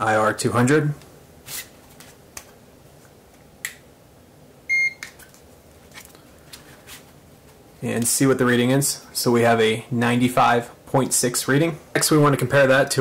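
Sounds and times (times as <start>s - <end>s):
thermometer short high beep: 4.7s - 5.0s.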